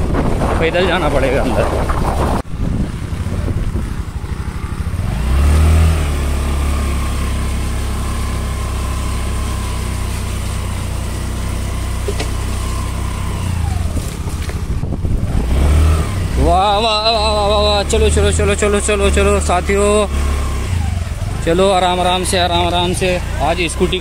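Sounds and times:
motor scooter engine under throttle: 0.0s - 24.0s.

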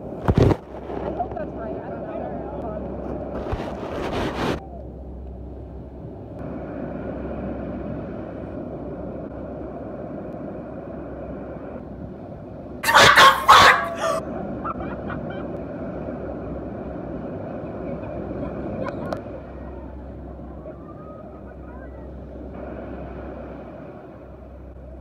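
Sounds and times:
loud burst of noise: 12.8s - 14.2s.

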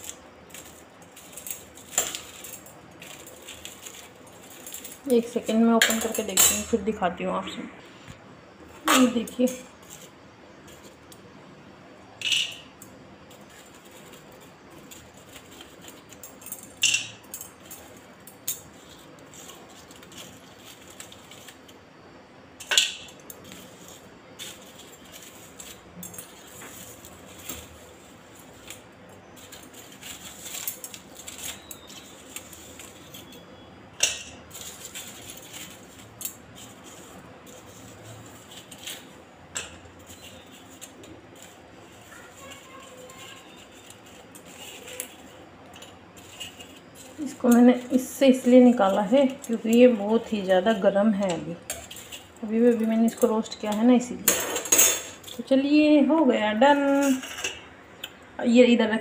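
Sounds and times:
foil crackle: 0.0s - 6.7s, 13.3s - 21.9s, 22.6s - 54.3s
steel utensils clinking: 0.0s - 7.1s, 8.8s - 11.3s, 12.2s - 21.8s, 22.6s - 55.8s, 56.5s - 58.2s.

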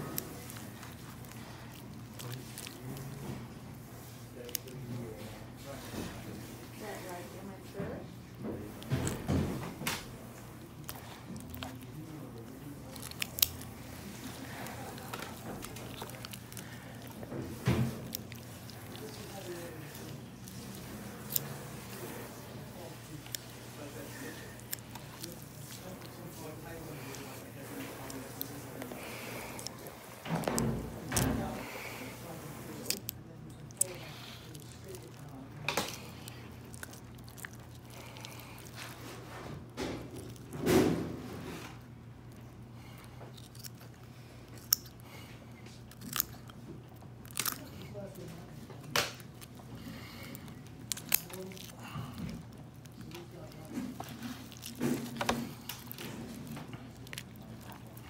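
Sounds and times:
steady low hum: 0.0s - 58.0s
wet handling sounds: 0.0s - 58.0s.

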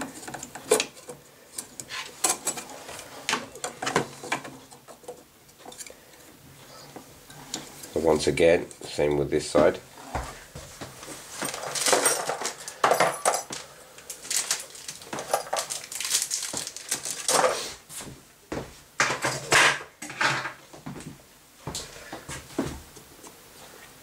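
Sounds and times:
small metal and plastic parts clinking: 11.4s - 17.5s.

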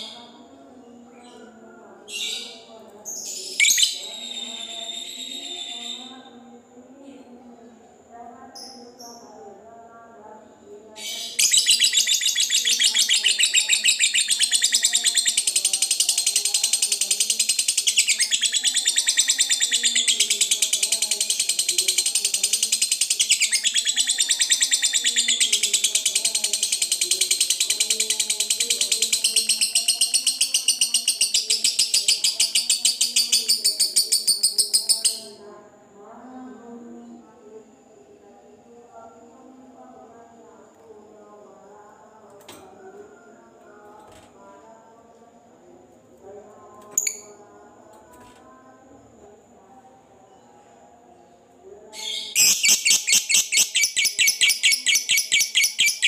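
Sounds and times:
lovebird rapid chattering trill: 11.2s - 35.3s, 52.0s - 56.0s.

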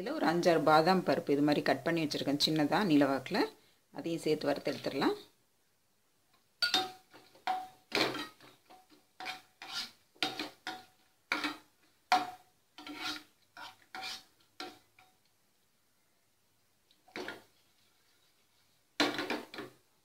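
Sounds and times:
metal skimmer scraping frying pan: 9.2s - 14.8s.

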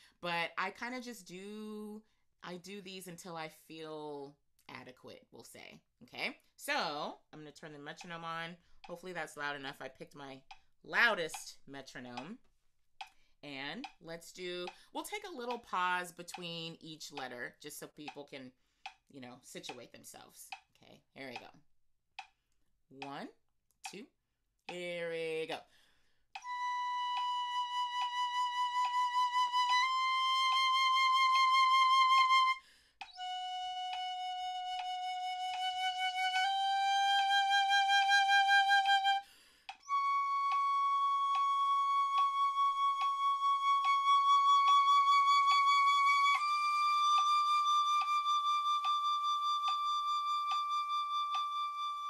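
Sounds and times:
metronome ticking: 7.5s - 12.4s, 13.0s - 19.0s, 21.3s - 21.6s, 26.4s - 52.0s
breaths: 13.1s - 13.4s, 14.7s - 14.9s, 18.6s - 19.0s, 25.6s - 26.3s, 32.6s - 33.0s, 39.2s - 39.8s
piccolo playing sustained notes: 26.4s - 32.6s, 33.2s - 39.2s, 39.8s - 52.0s.

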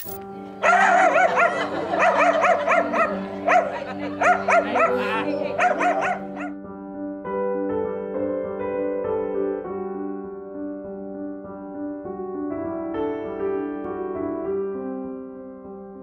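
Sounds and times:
soft background music: 0.0s - 16.0s
small dog barking: 0.6s - 6.5s.

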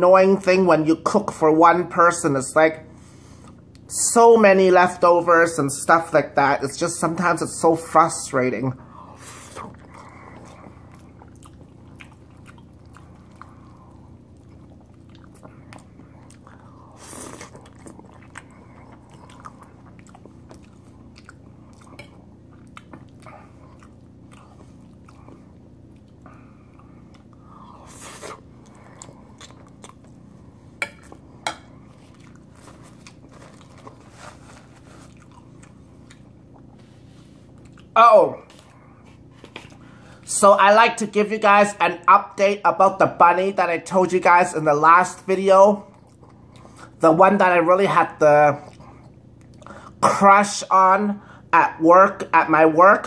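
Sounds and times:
wet chewing sounds: 8.8s - 40.3s, 45.8s - 47.0s, 48.6s - 50.0s.

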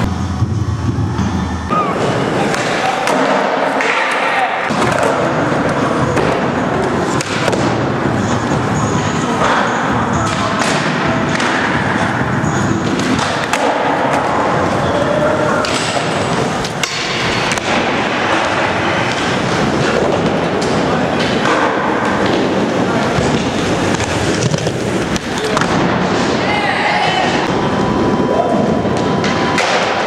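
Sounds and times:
skateboard wheels rolling on concrete: 11.6s - 30.0s.

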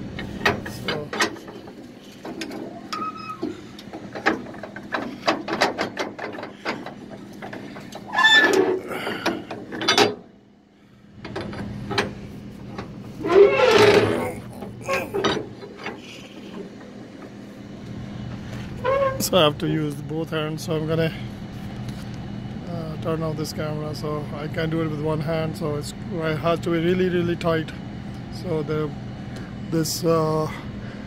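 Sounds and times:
rattling scrapes: 0.2s - 10.2s, 11.3s - 17.4s.

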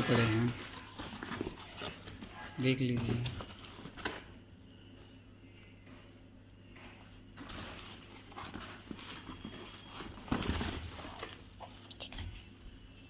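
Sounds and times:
paper and cardboard rustling: 0.0s - 4.3s, 7.0s - 12.3s.

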